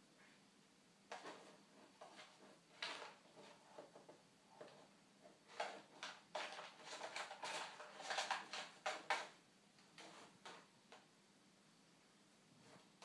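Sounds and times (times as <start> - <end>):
cat rustling treat packet: 5.4 - 9.4.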